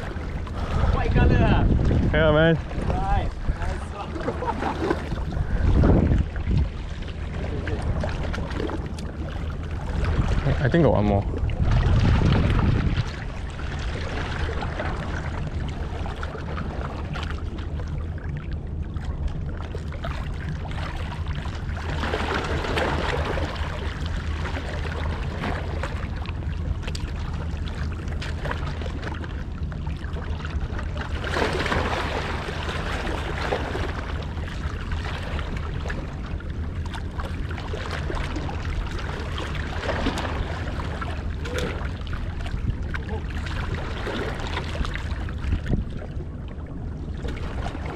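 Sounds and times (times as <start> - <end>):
boat engines droning: 0.0 - 47.9
water washing and splashing: 0.0 - 47.9.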